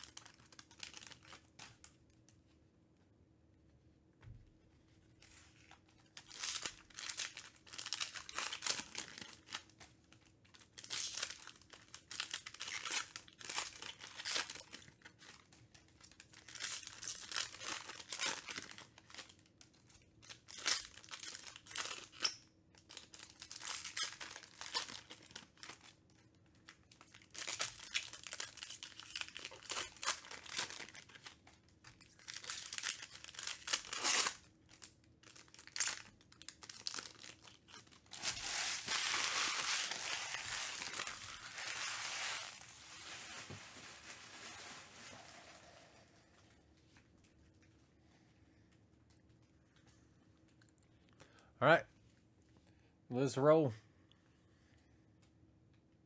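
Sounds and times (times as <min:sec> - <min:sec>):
foil packs tearing and crinkling: 0:00.0 - 0:01.6, 0:06.2 - 0:09.8, 0:10.6 - 0:19.5, 0:20.2 - 0:22.2, 0:22.8 - 0:26.0, 0:27.0 - 0:31.4, 0:32.0 - 0:45.8.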